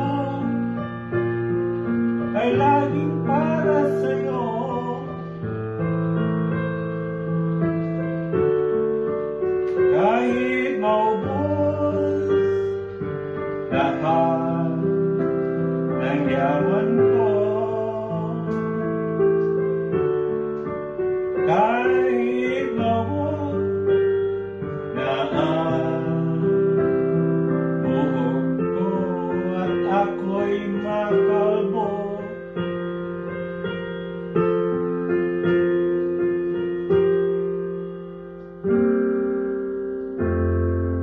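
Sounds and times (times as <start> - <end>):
piano ballad: 0.0 - 41.0
person singing wordlessly: 9.9 - 12.8, 13.7 - 15.2, 16.0 - 18.8, 21.4 - 23.9, 24.8 - 27.2, 27.8 - 32.5.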